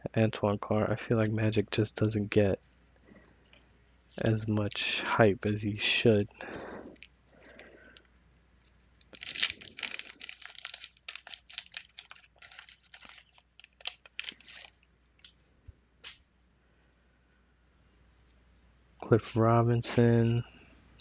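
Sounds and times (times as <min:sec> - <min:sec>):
wax paper wrapper crinkling: 0:04.1 - 0:05.4, 0:06.9 - 0:07.6, 0:08.9 - 0:15.4.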